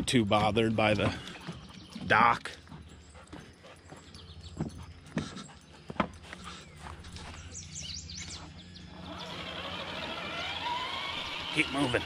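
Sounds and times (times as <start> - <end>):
dog footsteps on wooden dock: 0.0 - 7.4.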